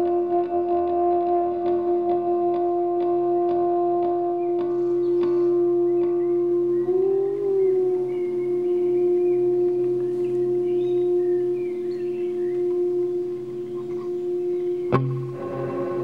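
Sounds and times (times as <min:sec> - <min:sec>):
held drone note: 0:00.0 - 0:16.0
low hum: 0:05.5 - 0:16.0
full chord: 0:09.8 - 0:16.0.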